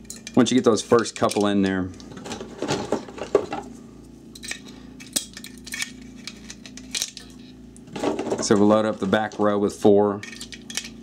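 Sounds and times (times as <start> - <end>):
handling sounds: 1.2 - 3.7.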